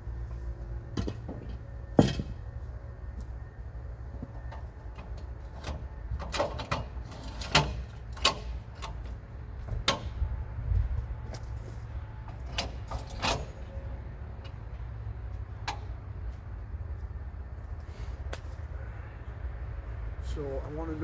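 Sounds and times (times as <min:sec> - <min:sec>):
low steady rumble: 0:00.0 - 0:21.0
metallic clunks and knocks: 0:00.9 - 0:02.5, 0:04.2 - 0:10.2, 0:12.2 - 0:13.8.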